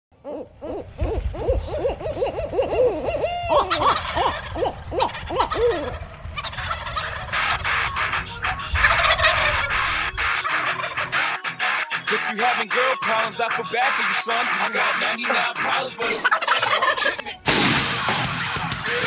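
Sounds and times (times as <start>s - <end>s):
owl calling: 0.2s - 17.4s
turkeys gobbling: 0.2s - 17.5s
music: 9.9s - 19.0s.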